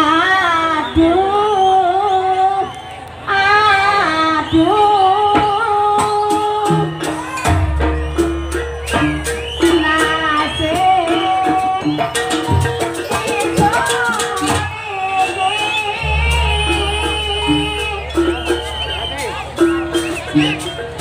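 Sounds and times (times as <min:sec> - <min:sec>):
sharp percussion: 0:04.6 - 0:21.0
drum strokes: 0:05.2 - 0:21.0
wavering melody line: 0:07.1 - 0:21.0
deep low tone: 0:16.0 - 0:18.9.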